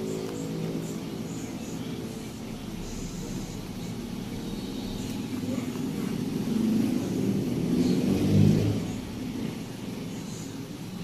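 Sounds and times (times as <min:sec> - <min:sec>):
vehicle engine passing by: 0:02.7 - 0:10.4.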